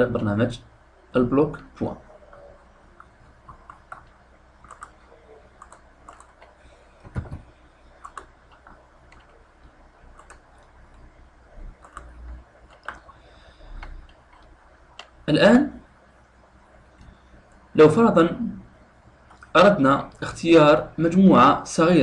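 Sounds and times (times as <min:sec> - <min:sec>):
computer mouse clicks: 0:02.3 - 0:05.0, 0:05.6 - 0:11.0, 0:11.8 - 0:15.2.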